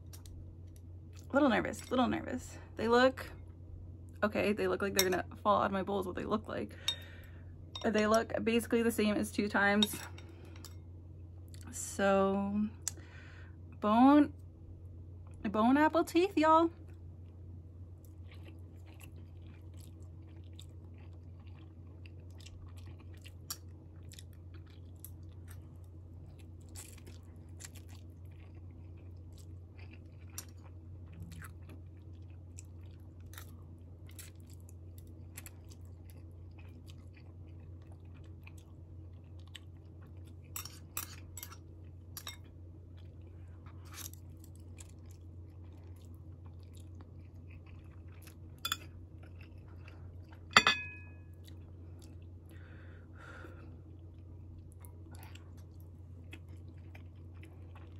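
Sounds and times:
steady low hum: 0.0s - 57.9s
chewing noodles: 18.0s - 50.5s, 53.8s - 57.9s.

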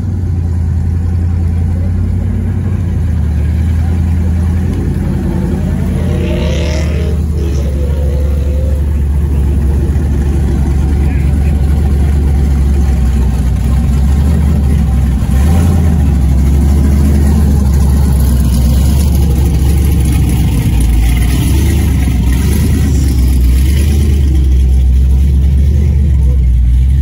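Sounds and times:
car engine running: 0.0s - 27.0s.

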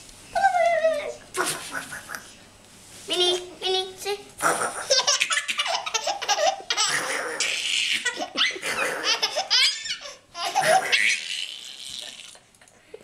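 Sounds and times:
baby laughing: 4.4s - 12.4s.

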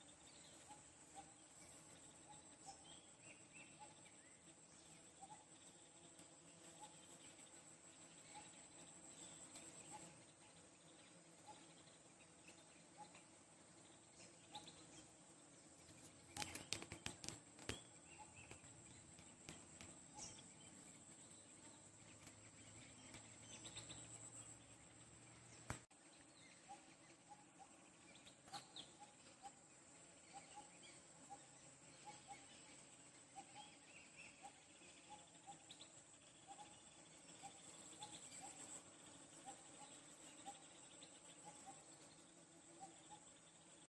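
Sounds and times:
sharp clicks: 16.3s - 19.9s.

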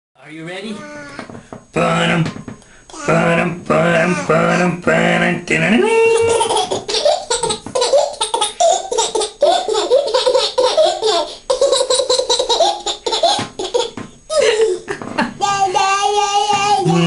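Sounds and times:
toddler giggling: 6.1s - 16.9s.

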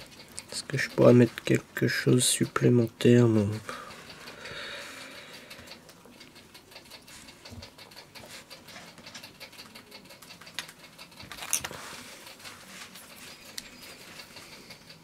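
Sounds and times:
fingers clicking and tapping wires: 0.0s - 11.6s.

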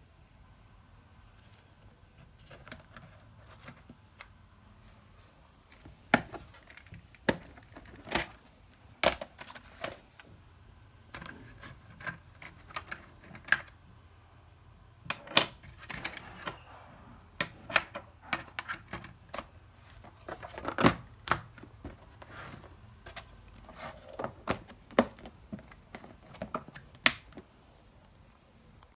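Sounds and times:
plastic boxes clicking and knocking: 5.7s - 10.3s, 11.1s - 13.8s, 17.4s - 27.6s.

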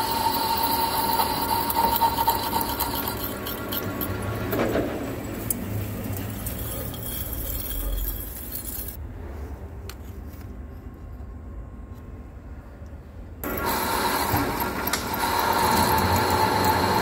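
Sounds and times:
steel chips clinking: 0.0s - 4.6s, 5.4s - 9.0s
lathe cutting steel: 0.0s - 8.5s, 13.4s - 17.0s.

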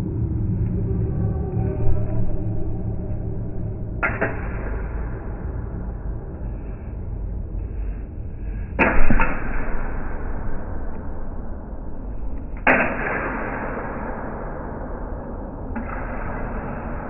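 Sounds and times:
low rumble: 0.0s - 17.0s
slowed steel saber hits: 3.0s - 5.6s, 8.7s - 17.0s.

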